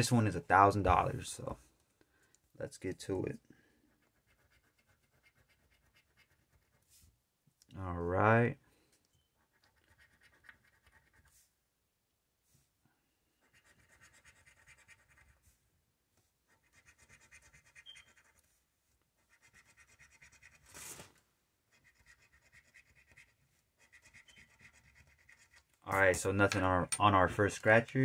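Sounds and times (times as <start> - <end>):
coin scratching lottery ticket: 13.4 - 15.4, 16.5 - 18.4, 19.2 - 20.8, 21.7 - 25.7.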